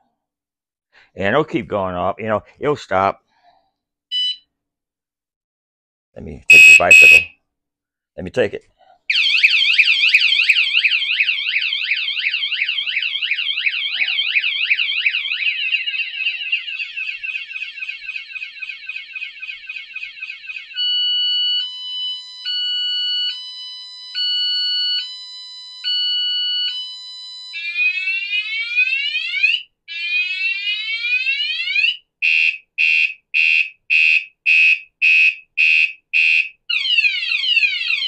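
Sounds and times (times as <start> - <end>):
bike alarm warbling siren: 6.5 - 7.3, 9.1 - 38.0.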